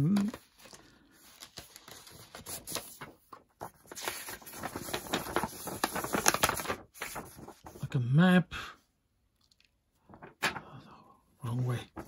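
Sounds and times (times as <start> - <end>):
stiff paper rustling and crinkling: 0.0 - 7.9, 10.0 - 10.7, 11.5 - 12.0.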